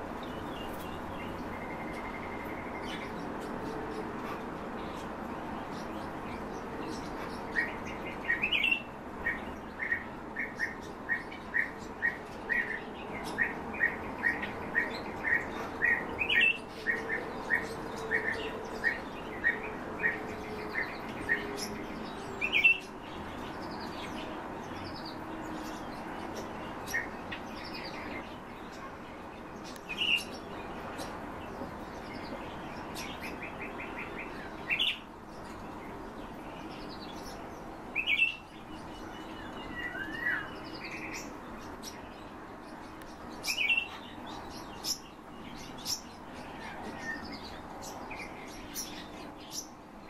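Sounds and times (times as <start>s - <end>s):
song thrush calling: 36.9s - 41.4s, 43.4s - 49.7s.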